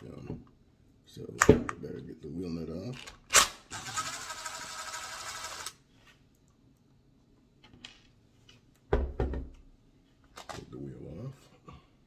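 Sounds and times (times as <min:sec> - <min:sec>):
cordless drill spinning: 0:03.7 - 0:05.8.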